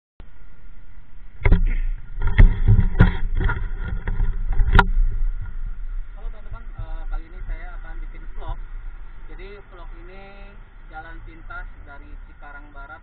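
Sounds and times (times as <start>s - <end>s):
wind on microphone: 0.3s - 13.0s
sharp knocks: 1.4s - 5.8s
motorbike rumble: 1.4s - 13.0s.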